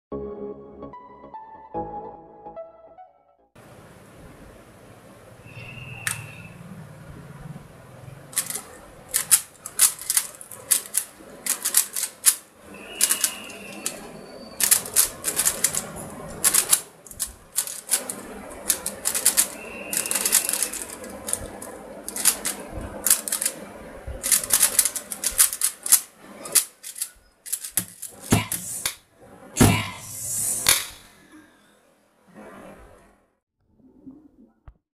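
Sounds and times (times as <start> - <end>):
plastic cube clicking: 8.3 - 12.4, 13.0 - 23.6, 24.2 - 29.0.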